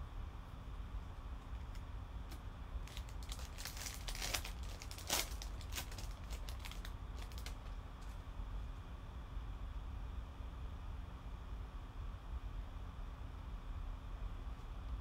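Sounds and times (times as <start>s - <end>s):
foil wrapper crinkling and tearing: 2.8s - 8.2s.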